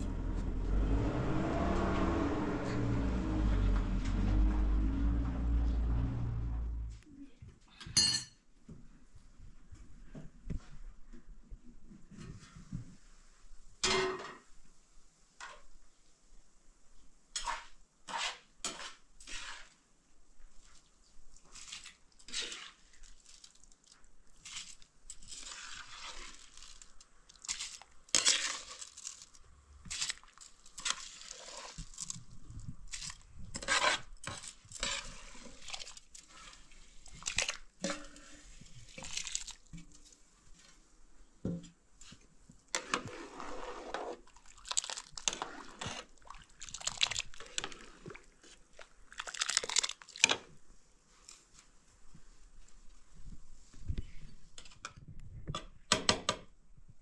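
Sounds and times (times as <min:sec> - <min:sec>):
handling crunches and scrapes: 0:21.4 - 0:40.8, 0:42.0 - 0:51.8.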